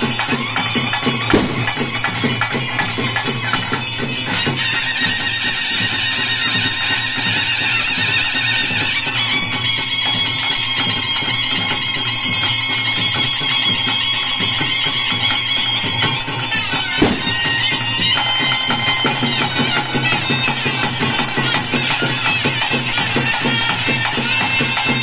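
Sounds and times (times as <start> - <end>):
high held melody: 0.0 - 11.8, 13.2 - 25.0
steady drumming: 0.0 - 25.0
loud thump: 1.4 - 1.7, 17.0 - 17.4.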